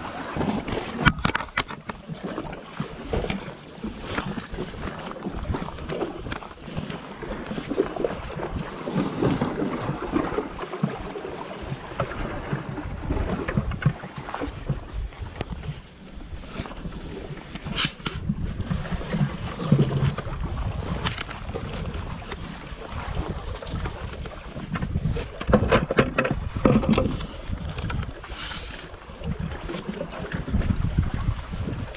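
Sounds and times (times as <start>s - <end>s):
small waves lapping on rocks: 0.0s - 31.9s
wind rumbling on microphone: 0.0s - 31.9s
scrapes and knocks on rocks: 0.6s - 3.4s, 17.6s - 18.4s, 19.1s - 20.4s, 23.8s - 28.9s.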